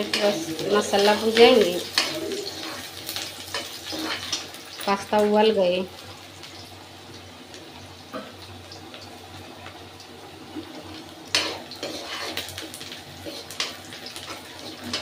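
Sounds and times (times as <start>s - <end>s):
steel spoon scraping pan: 0.0s - 4.5s, 11.3s - 12.6s
onions sizzling in oil: 0.0s - 15.0s.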